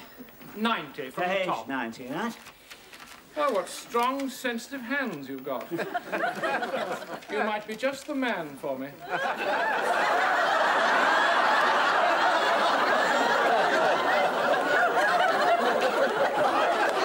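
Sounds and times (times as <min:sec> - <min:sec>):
audience laughing: 0:05.6 - 0:07.7, 0:09.0 - 0:17.0.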